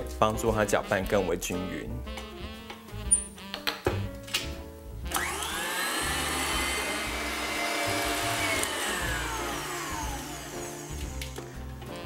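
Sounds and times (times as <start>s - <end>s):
stand mixer motor whine: 5.1s - 11.4s.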